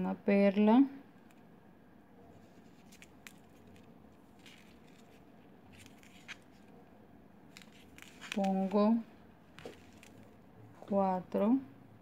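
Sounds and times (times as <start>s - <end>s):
beads clicking: 2.4s - 6.8s, 7.5s - 8.9s, 9.5s - 10.4s.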